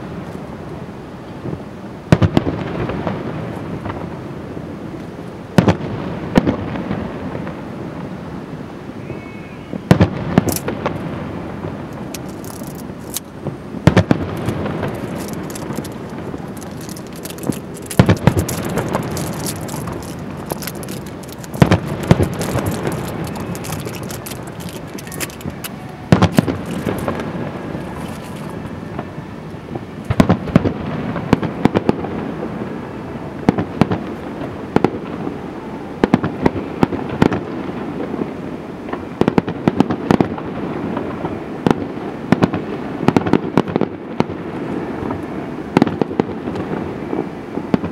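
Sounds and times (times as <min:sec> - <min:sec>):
firework pops and crackle: 0:01.4 - 0:04.1, 0:05.0 - 0:07.6, 0:09.9 - 0:11.2, 0:11.8 - 0:29.0, 0:30.0 - 0:32.6, 0:33.5 - 0:35.3, 0:36.0 - 0:38.3, 0:38.9 - 0:47.9
firework shells booming: 0:09.9 - 0:29.0.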